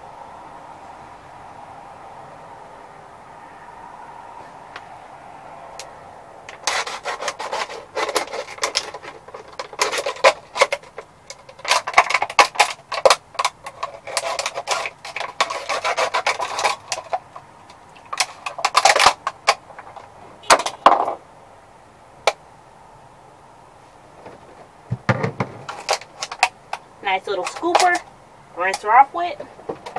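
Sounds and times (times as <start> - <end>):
plastic bottle crinkling: 6.5 - 20.7, 25.1 - 26.8.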